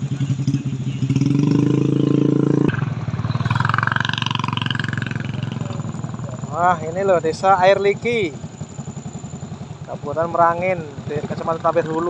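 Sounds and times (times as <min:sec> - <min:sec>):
motorcycle engines rumbling: 0:00.0 - 0:12.0.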